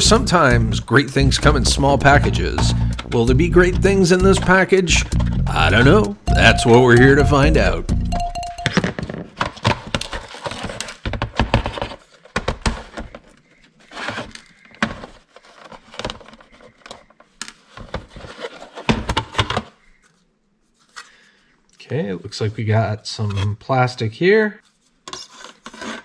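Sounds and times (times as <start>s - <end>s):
plastic parts clicking and clattering: 8.7s - 20.2s.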